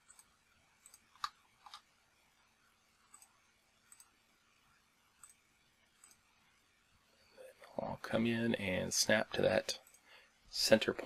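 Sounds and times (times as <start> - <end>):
computer mouse clicks: 0.0 - 1.9, 3.0 - 4.2, 5.2 - 5.4, 6.0 - 6.3, 9.8 - 10.1.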